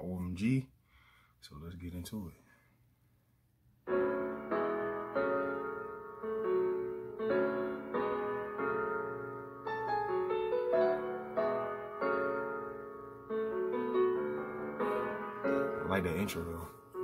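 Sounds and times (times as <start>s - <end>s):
piano chords: 3.8s - 17.0s.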